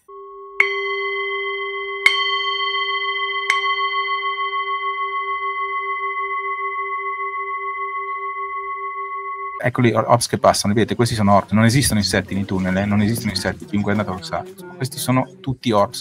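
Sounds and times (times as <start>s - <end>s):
metal chime struck: 0.6s - 10.4s.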